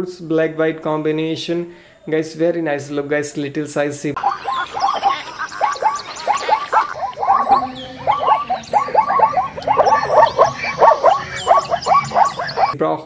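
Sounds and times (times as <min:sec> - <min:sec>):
zebras barking: 0:04.2 - 0:12.8.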